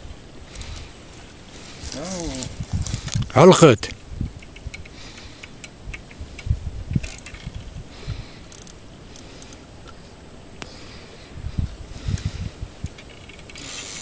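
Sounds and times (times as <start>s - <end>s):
fishing reel clicking: 8.5s - 9.6s, 13.1s - 14.0s.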